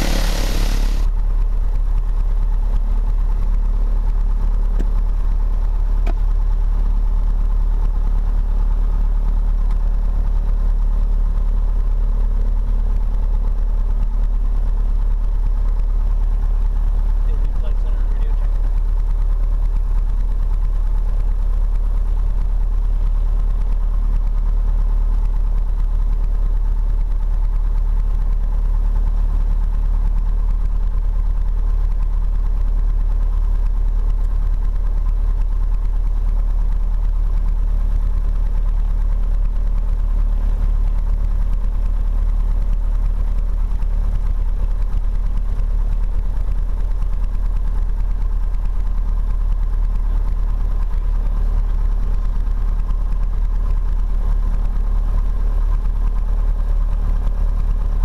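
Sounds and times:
aircraft engine idling: 0.0s - 1.1s.

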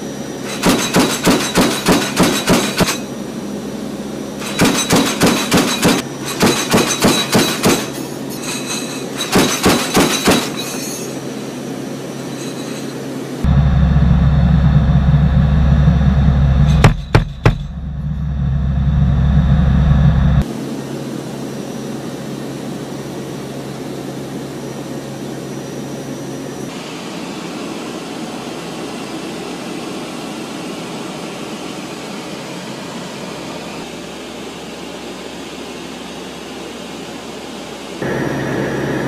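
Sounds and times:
propeller engines droning: 0.0s - 39.0s
sharp bangs: 16.6s - 18.1s.

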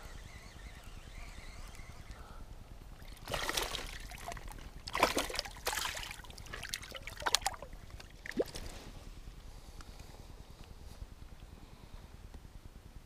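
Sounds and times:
fish splashing in water: 3.0s - 8.7s.

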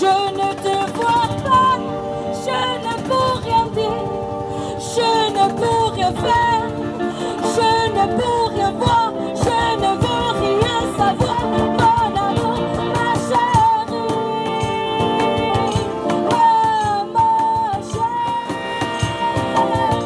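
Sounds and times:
cajon beat: 0.0s - 20.0s
strummed acoustic guitars: 0.0s - 20.0s
woman singing: 0.0s - 20.0s.

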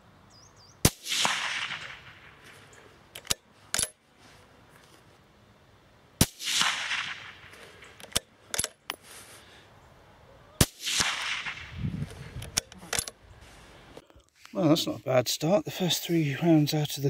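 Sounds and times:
rifle shots with echo: 0.8s - 2.6s, 6.2s - 8.0s, 10.6s - 11.8s
rifle bolt clicks: 3.2s - 4.0s, 7.6s - 8.9s.

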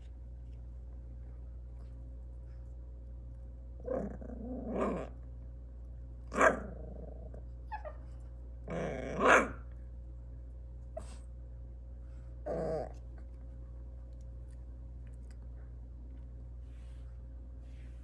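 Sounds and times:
puppy growling: 3.8s - 5.3s, 6.3s - 8.0s, 8.6s - 9.6s, 12.4s - 13.3s
puppy barking: 6.3s - 6.7s, 9.2s - 9.6s.

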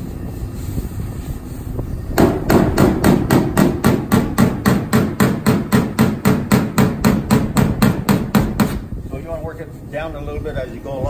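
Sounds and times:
hammer tapping metal panel: 2.2s - 8.8s.

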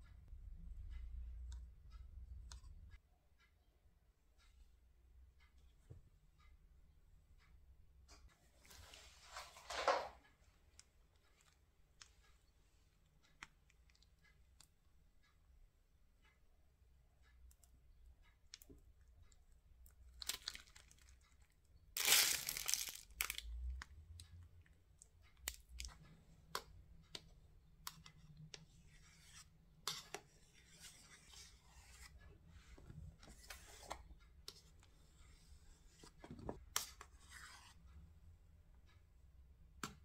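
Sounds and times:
plastic piping bag crinkling: 20.2s - 21.2s, 22.0s - 23.5s
spatula scraping cream: 27.2s - 38.0s.

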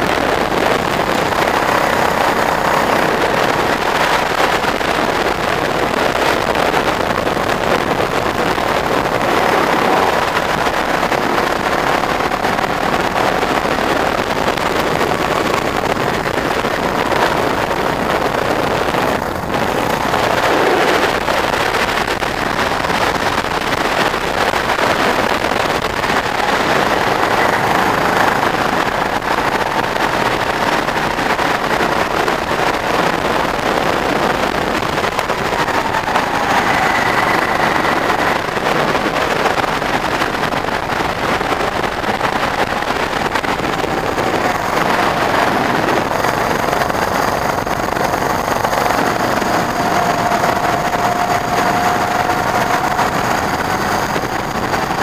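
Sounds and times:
go-kart engine running: 0.0s - 55.0s
wind noise on microphone: 0.0s - 55.0s.

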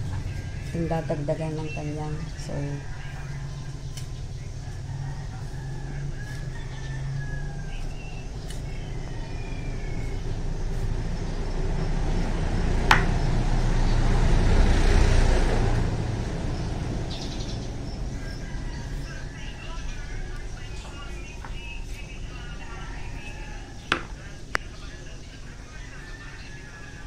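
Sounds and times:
rooster crowing faintly: 0.0s - 27.0s
vehicle passing: 0.0s - 27.0s.

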